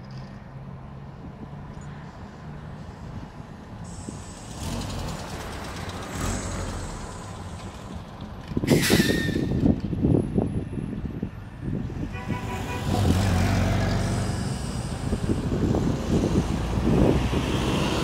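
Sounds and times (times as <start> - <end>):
trolleybus high whine: 0.5 - 18.0
air brakes hissing: 3.8 - 4.6, 8.7 - 9.6.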